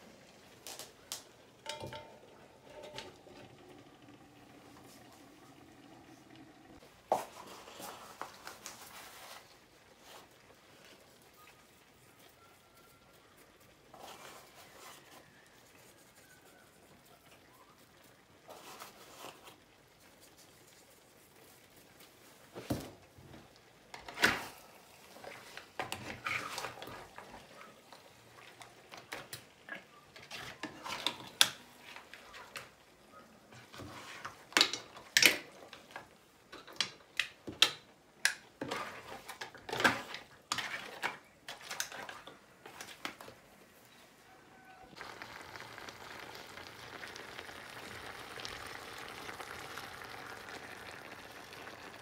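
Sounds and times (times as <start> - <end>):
utensil scraping frying pan: 1.5 - 5.1, 24.0 - 28.1, 30.2 - 32.6, 33.5 - 35.6, 38.6 - 42.8.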